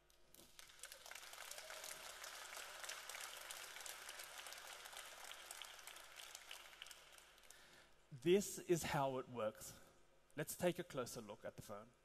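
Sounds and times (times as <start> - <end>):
audience applauding faintly: 0.3 - 7.7.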